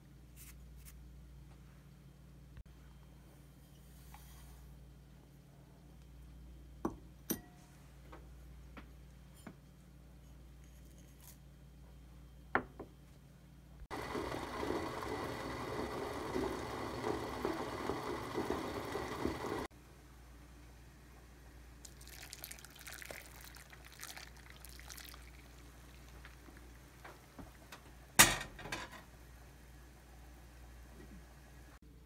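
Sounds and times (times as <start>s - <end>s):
liquid boiling in pan: 21.8s - 27.7s.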